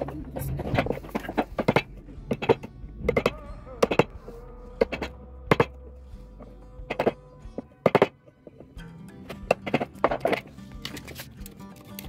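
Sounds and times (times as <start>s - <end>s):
hammer striking chisel handle: 1.3s - 4.2s, 4.8s - 5.8s, 6.9s - 8.4s.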